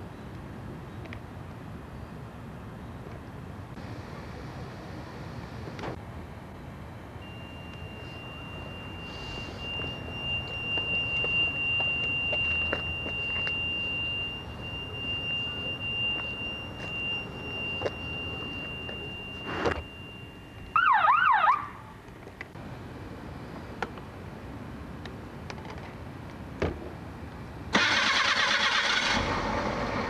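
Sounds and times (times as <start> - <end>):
steady high-pitched whine: 3.6 - 26.2
electronic siren wail: 7.9 - 22.0.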